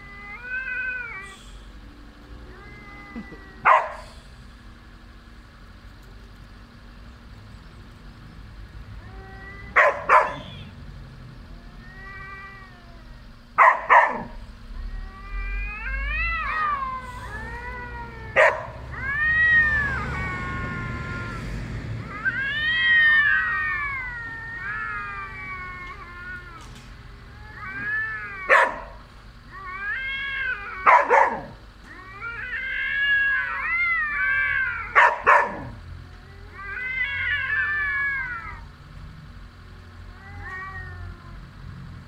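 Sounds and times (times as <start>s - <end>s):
cats yowling: 0.0s - 5.1s, 8.8s - 10.8s, 11.4s - 39.0s, 39.6s - 42.0s.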